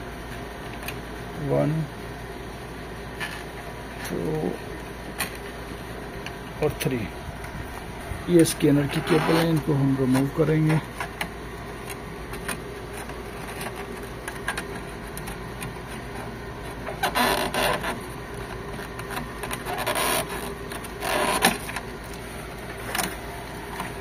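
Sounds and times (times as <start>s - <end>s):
steady low hum: 0.0s - 24.0s
scraping rustling cable pulls: 7.4s - 24.0s.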